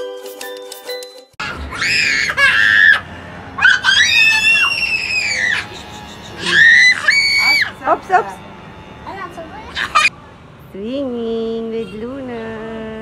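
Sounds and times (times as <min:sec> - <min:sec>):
children shrieking with delight: 0:01.4 - 0:08.3, 0:09.6 - 0:10.1.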